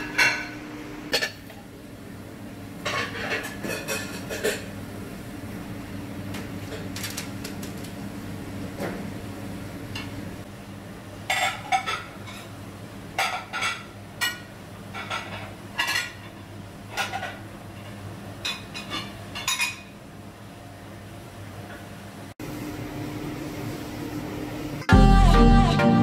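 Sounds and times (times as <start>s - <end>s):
dishes and utensils clattering: 0.0s - 1.5s, 2.8s - 4.8s, 11.3s - 12.5s, 13.2s - 20.0s.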